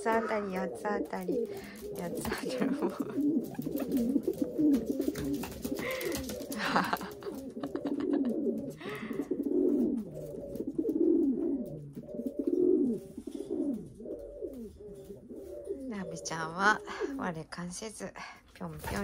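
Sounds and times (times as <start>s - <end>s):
pigeon cooing: 0.0s - 17.4s.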